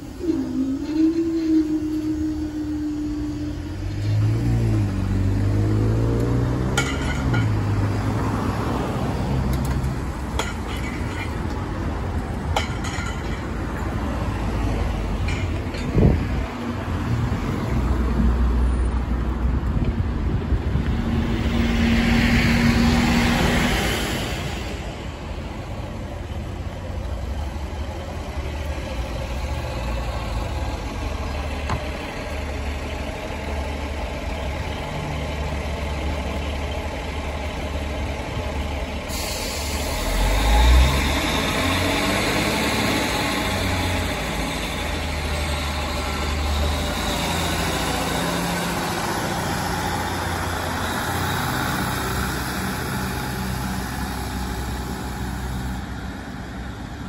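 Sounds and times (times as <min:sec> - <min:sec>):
train engine accelerating: 0:00.0 - 0:07.5, 0:20.8 - 0:57.0
train diesel engines idling: 0:00.0 - 0:57.0.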